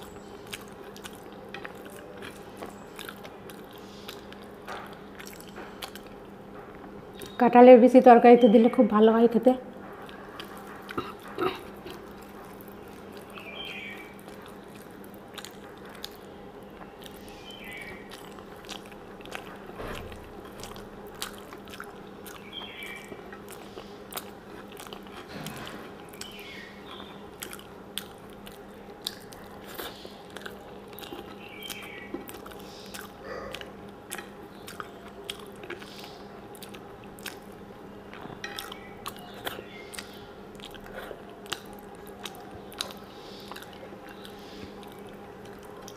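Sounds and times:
wet chewing clicks: 0.0 - 7.4, 9.8 - 45.9
faint steady hum: 0.0 - 45.9
fingers squishing rice and curry: 10.0 - 45.9.

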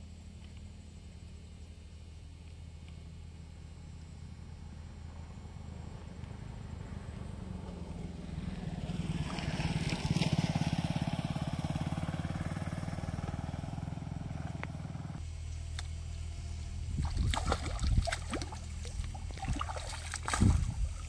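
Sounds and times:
motorcycle engine passing: 5.1 - 15.2.

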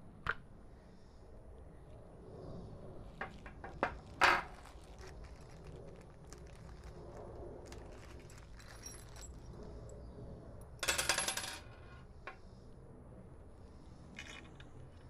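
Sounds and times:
small hard objects rattling: 3.2 - 9.6.

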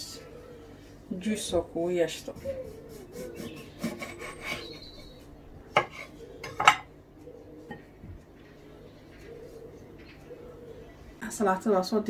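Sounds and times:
knife cutting on wooden board: 2.6 - 4.7.

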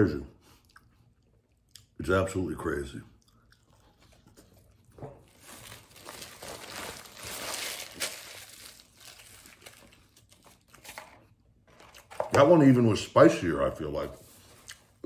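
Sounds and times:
foil wrapper crinkling: 5.2 - 12.1.

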